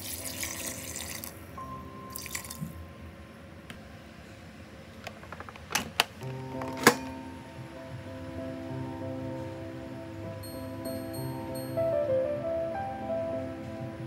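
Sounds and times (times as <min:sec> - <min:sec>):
water pouring into a pot: 0:00.0 - 0:01.4, 0:02.1 - 0:02.6
soft background music: 0:00.0 - 0:03.7, 0:06.2 - 0:14.0.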